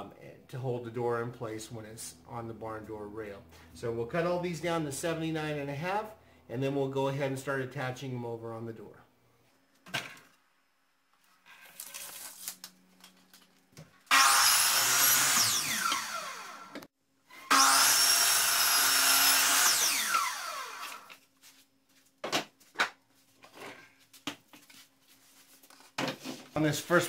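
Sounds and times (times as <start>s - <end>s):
miter saw cutting wood: 14.1s - 21.2s
saw blade winding down whine: 14.1s - 21.2s.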